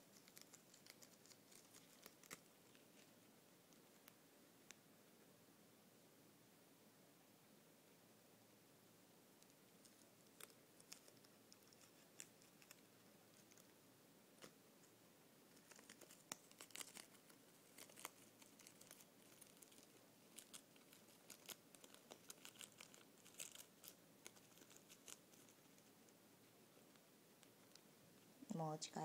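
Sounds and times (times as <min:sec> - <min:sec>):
guinea pig chewing lettuce: 0:00.0 - 0:04.2, 0:09.8 - 0:13.8, 0:15.5 - 0:26.0.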